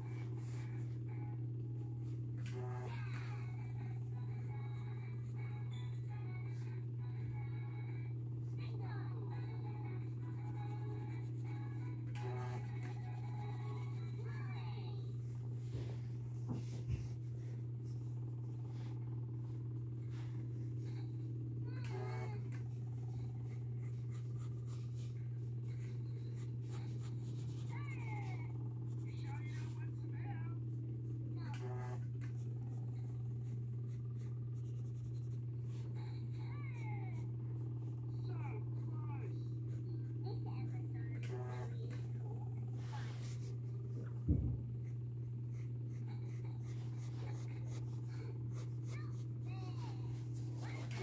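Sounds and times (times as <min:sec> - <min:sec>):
steady low hum: 0:00.0 - 0:51.0
pencil sketching on paper: 0:26.0 - 0:29.8, 0:44.8 - 0:51.0
thump: 0:44.3 - 0:44.6.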